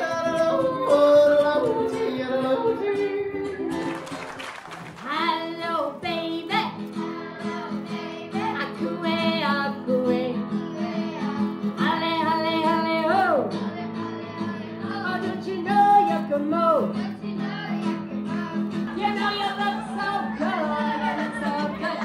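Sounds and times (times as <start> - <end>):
man singing: 0.0 - 3.7
woman singing: 0.0 - 3.9, 5.0 - 22.0
strummed acoustic guitar: 0.0 - 4.5, 5.1 - 22.0.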